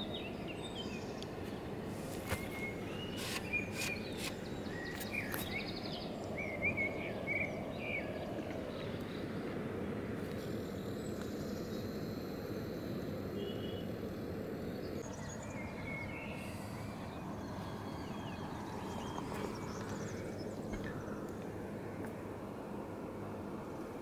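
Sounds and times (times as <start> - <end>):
small bird chirping: 2.2 - 8.2.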